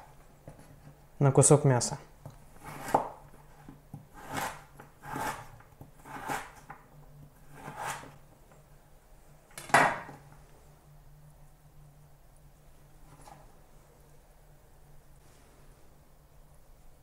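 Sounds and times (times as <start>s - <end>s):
knife slicing on cutting board: 2.6s - 3.2s.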